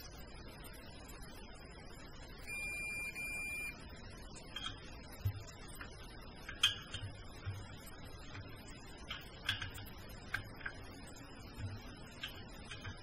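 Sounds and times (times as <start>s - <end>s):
torque wrench beep: 2.5s - 3.8s.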